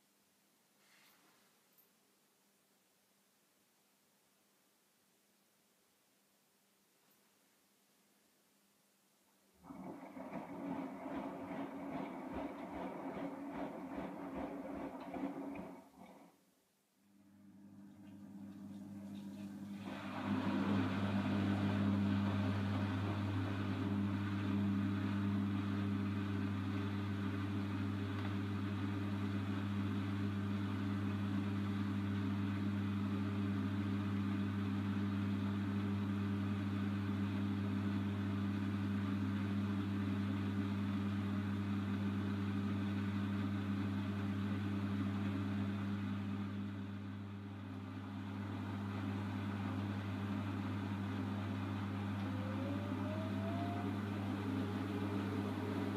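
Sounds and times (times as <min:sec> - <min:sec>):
washing machine spinning: 0:09.6 - 0:16.5, 0:17.3 - 0:39.2, 0:42.9 - 0:55.9.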